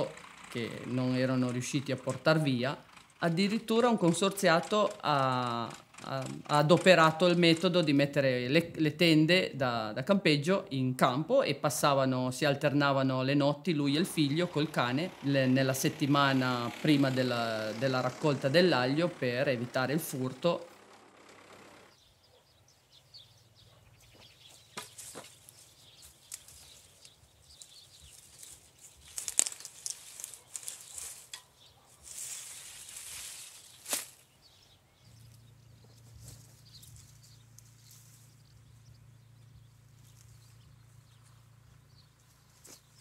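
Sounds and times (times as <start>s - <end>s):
leaves and stalks crackling: 24.6s - 39.1s, 39.7s - 43.0s
plants rustling: 24.7s - 34.4s, 35.2s - 38.4s.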